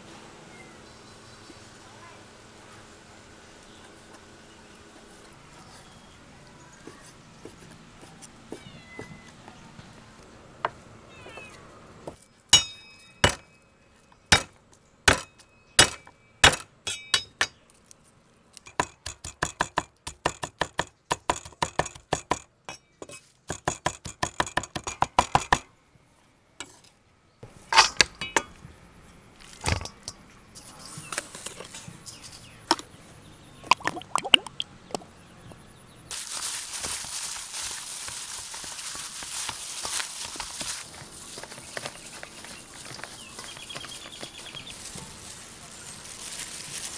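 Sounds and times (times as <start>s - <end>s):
cleaver chopping on wooden block: 15.1s - 16.6s.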